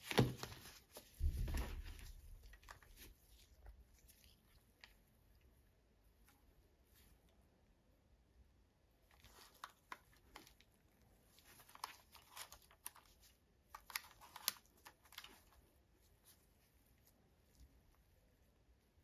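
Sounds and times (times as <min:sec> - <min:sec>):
glove rustling on camera: 0:00.0 - 0:04.9.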